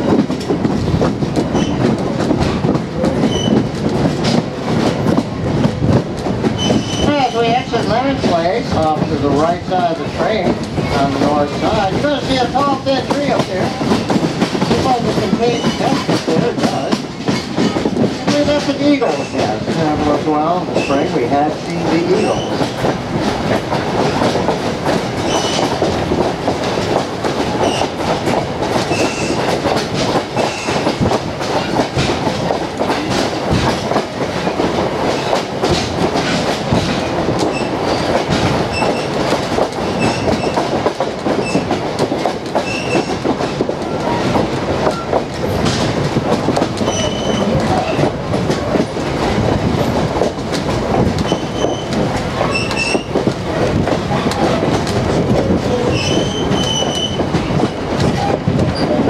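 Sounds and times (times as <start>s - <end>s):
train wheels rattling: 0.0s - 59.0s
high squeaks: 25.2s - 25.7s, 46.8s - 48.0s, 55.9s - 57.2s.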